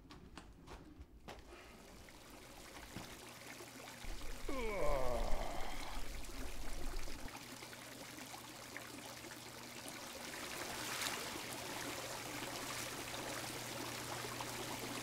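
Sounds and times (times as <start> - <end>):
water trickling and splashing: 1.5 - 15.0
low steady hum: 4.1 - 7.3.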